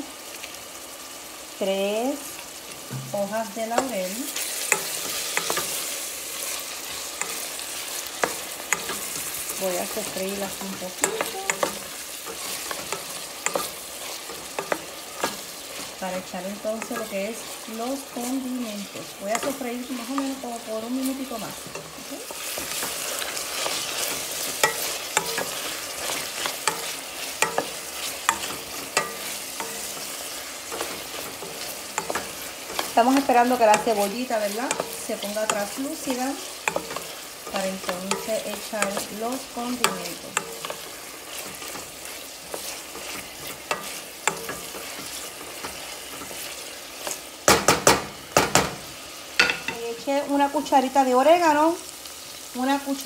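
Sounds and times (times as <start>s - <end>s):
vegetables sizzling in oil: 0.0s - 53.0s
wooden spoon knocking metal pot: 2.9s - 3.9s, 47.5s - 48.8s, 49.4s - 49.8s.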